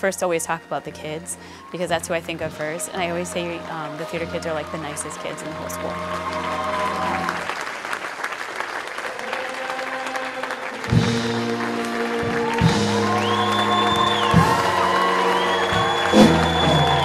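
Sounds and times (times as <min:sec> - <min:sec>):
audience applause: 0:05.0 - 0:17.0.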